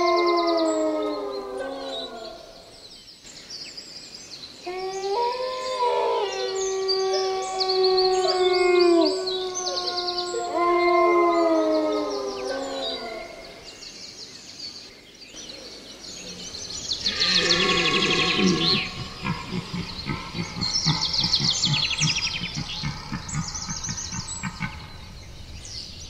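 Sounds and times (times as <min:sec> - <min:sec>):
dogs howling together: 0:04.8 - 0:13.6, 0:17.1 - 0:24.2.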